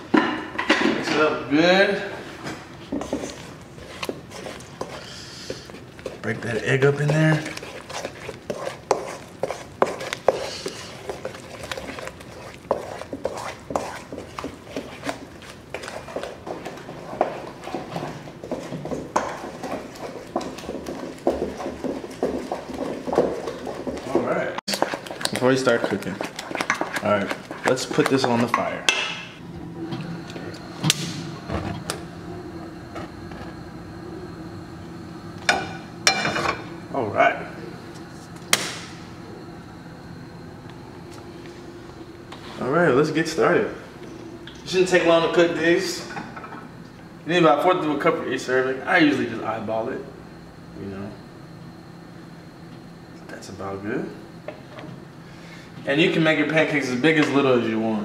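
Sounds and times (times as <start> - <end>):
steady low hum: 0.0 - 58.0
utensil scraping batter in bowl: 3.0 - 28.5.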